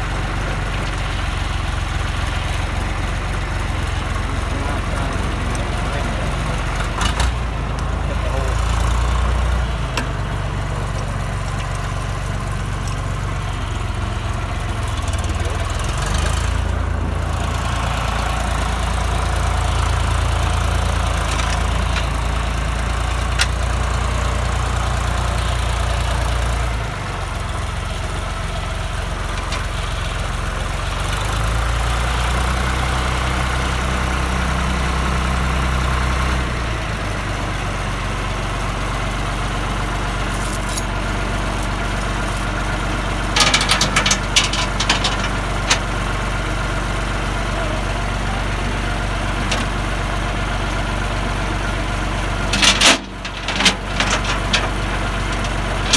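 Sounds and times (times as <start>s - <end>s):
tractor diesel engine running: 0.0s - 55.9s
tow chain clinking: 20.8s - 23.7s, 40.3s - 42.6s, 52.6s - 55.9s.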